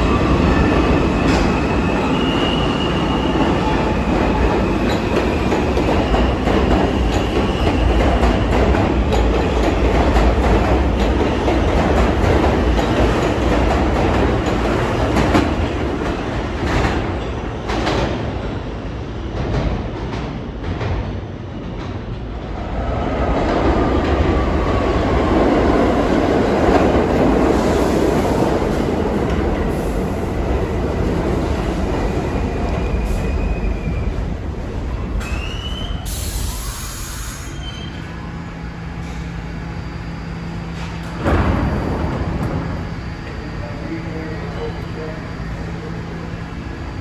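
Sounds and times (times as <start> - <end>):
subway train wheels rumbling: 0.0 - 47.0
train low hum: 0.0 - 47.0
wheel and brake squeals: 37.2 - 38.1
thump: 41.2 - 42.6.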